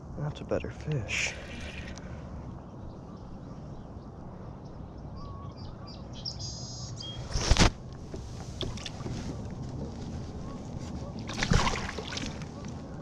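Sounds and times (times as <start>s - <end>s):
water and handling noise: 7.5s - 12.8s.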